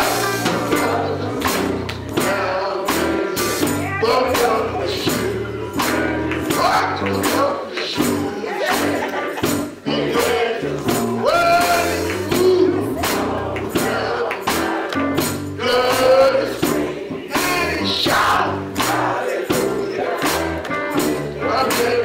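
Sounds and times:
bass line: 0:00.0 - 0:22.0
gospel choir singing: 0:00.0 - 0:22.0
steady beat: 0:00.0 - 0:22.0
man singing lead: 0:02.1 - 0:14.5, 0:15.5 - 0:18.5, 0:21.4 - 0:22.0.

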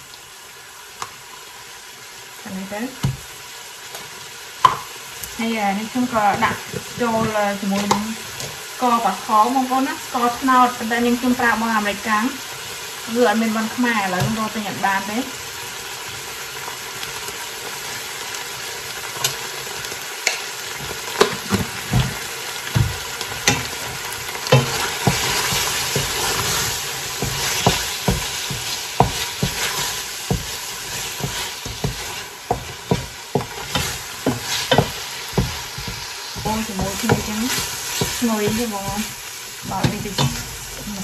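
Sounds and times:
sizzling liquid hiss: 0:00.0 - 0:41.0
wooden spoon knocking pot: 0:04.6 - 0:04.9, 0:24.5 - 0:26.4, 0:27.2 - 0:39.1.

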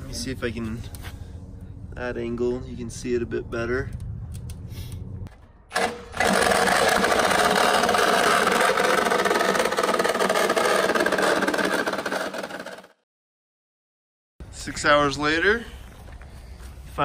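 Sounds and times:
reciprocating saw cutting steel: 0:05.7 - 0:13.0.

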